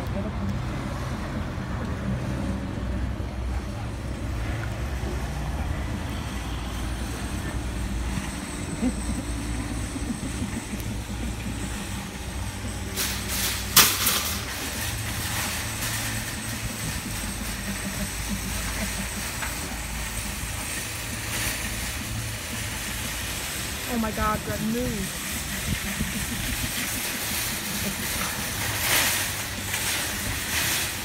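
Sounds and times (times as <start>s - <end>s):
low rumble of vehicles: 0.0s - 31.0s.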